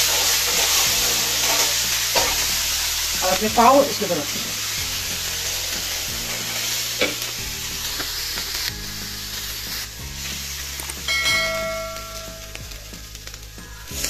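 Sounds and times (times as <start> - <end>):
bread sizzling in butter: 0.0 - 14.0
soft background music: 0.0 - 14.0
short ringing chime: 11.1 - 12.5.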